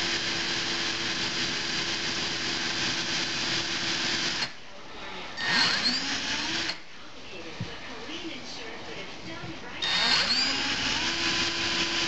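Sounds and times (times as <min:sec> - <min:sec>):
cordless drill running: 0:00.0 - 0:04.6, 0:05.4 - 0:06.8, 0:09.8 - 0:12.0.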